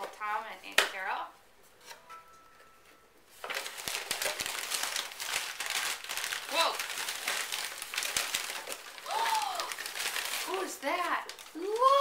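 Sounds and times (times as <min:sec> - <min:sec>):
tissue paper crinkling and rustling: 0:03.3 - 0:12.0.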